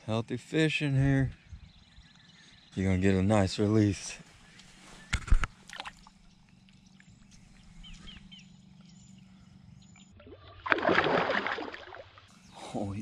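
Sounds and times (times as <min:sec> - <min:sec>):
faint bird chirps: 0:00.5 - 0:05.2, 0:06.1 - 0:10.2
fish splashing in shallow water: 0:05.5 - 0:06.3, 0:10.2 - 0:12.3.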